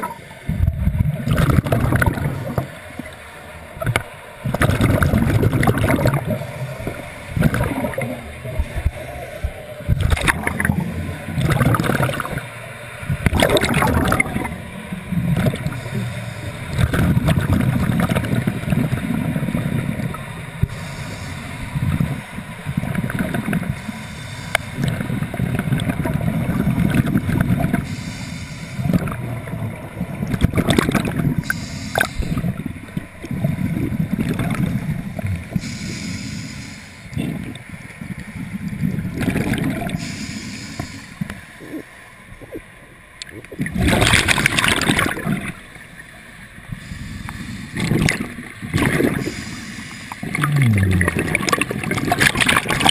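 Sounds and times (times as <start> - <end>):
exhaled bubbles gushing: 0.0 - 2.7, 3.8 - 12.5, 13.2 - 15.9, 16.7 - 20.7, 21.8 - 23.8, 24.8 - 27.9, 28.8 - 35.7, 38.8 - 40.0, 43.3 - 45.6, 47.8 - 49.4, 50.2 - 52.9
regulator inhalation hiss: 15.7 - 16.8, 20.6 - 22.0, 23.7 - 25.0, 27.8 - 29.1, 31.4 - 32.6, 35.5 - 37.2, 40.0 - 41.6, 46.7 - 48.0, 49.0 - 50.4.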